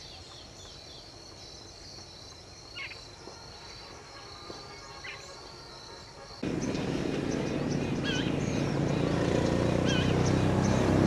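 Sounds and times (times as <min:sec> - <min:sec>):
insects droning: 0:00.0 - 0:11.0
short bird calls: 0:06.4 - 0:10.8.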